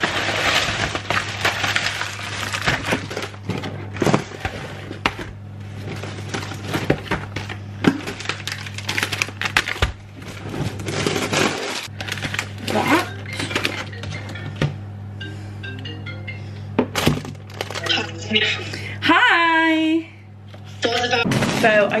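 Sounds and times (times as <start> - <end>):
plastic bags rustling: 0.0 - 14.1, 17.0 - 18.3
low steady hum: 0.0 - 22.0.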